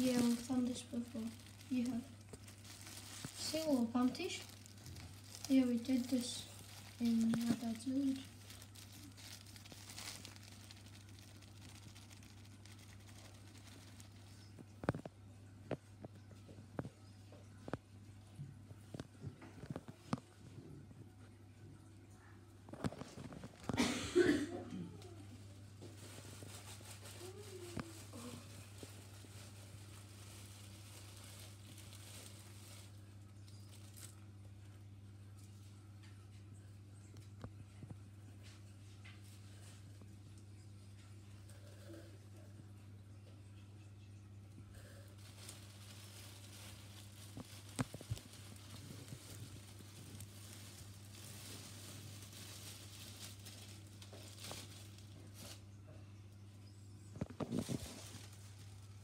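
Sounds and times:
faint rustling: 0.0s - 16.9s, 44.8s - 55.6s, 57.1s - 59.0s
steady low hum: 0.0s - 59.0s.

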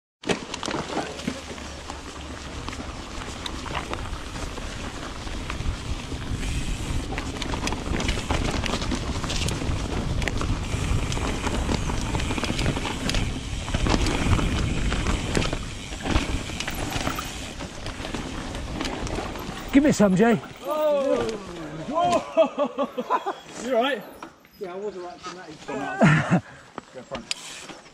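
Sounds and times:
bike knocking and rattling: 0.2s - 21.7s
tyres rolling over leaves and dirt: 0.2s - 27.9s
wind buffeting microphone: 2.8s - 16.9s.

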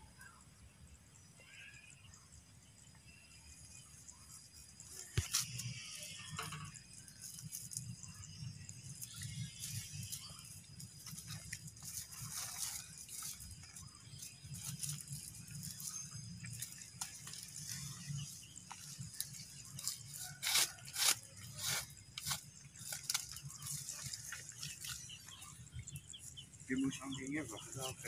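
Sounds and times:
sack and twine rustling: 10.9s - 25.0s.

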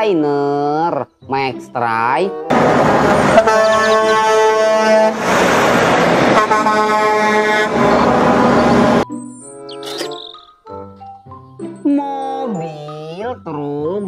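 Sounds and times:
truck air horn blasts: 2.5s - 5.4s, 6.1s - 9.0s
truck driving past: 2.5s - 9.0s.

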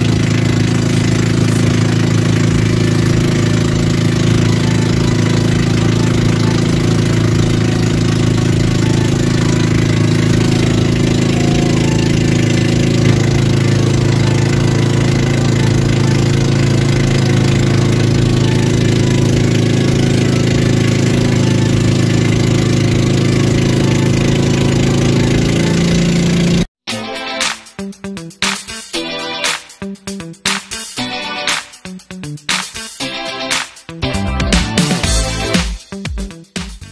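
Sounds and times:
boat engine humming: 0.0s - 26.7s.

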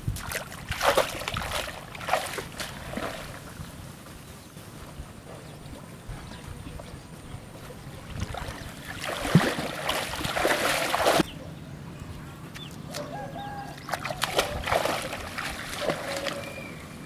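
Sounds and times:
water splashing from wading: 0.0s - 3.6s, 8.0s - 11.3s, 13.7s - 17.0s.

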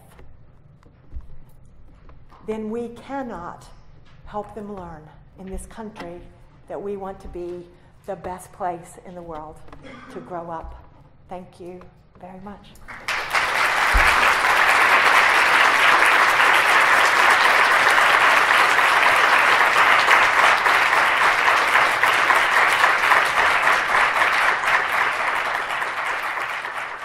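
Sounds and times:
audience clapping: 12.9s - 27.0s.

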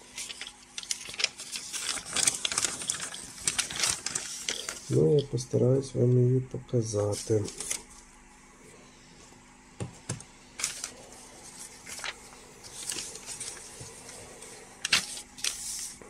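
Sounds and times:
stiff paper crinkling and rustling: 0.0s - 5.5s, 7.0s - 8.1s, 10.0s - 16.0s.

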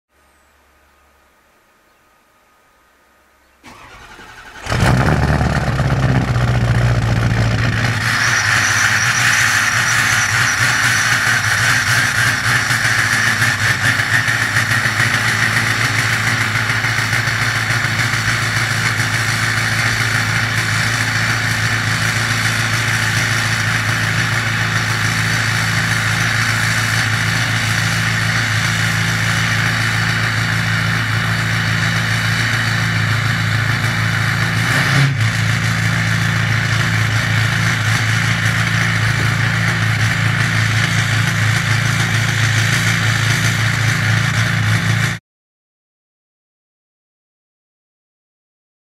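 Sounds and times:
diesel engine idling: 3.6s - 45.2s
high rushing sound: 5.5s - 17.9s.

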